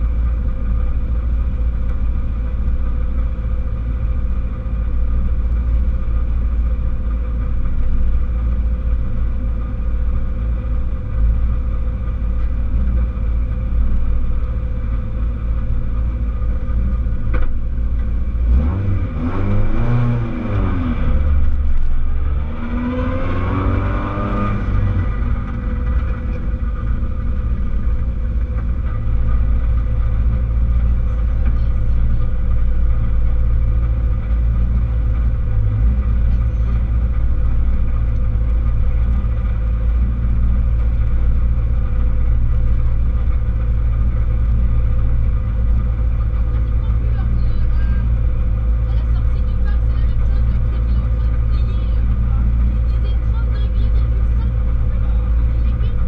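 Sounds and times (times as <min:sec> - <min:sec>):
car engine idling: 0:00.0 - 0:56.0
engine revving: 0:17.3 - 0:56.0.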